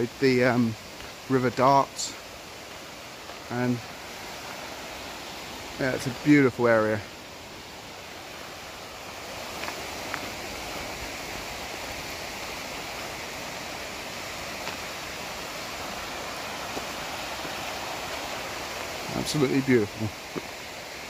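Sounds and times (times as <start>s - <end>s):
river rushing over rocks: 0.0s - 21.0s.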